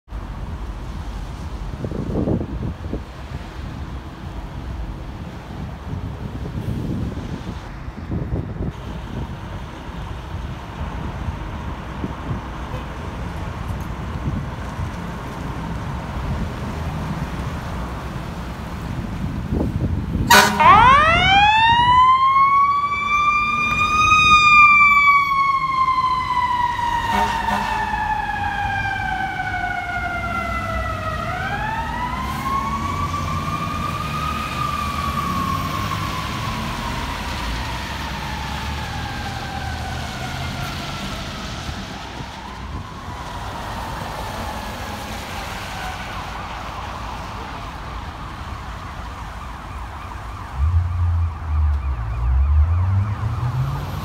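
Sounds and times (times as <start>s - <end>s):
truck engine rumbling: 0.1s - 44.0s, 50.1s - 54.0s
fire engine siren wailing: 19.2s - 54.0s.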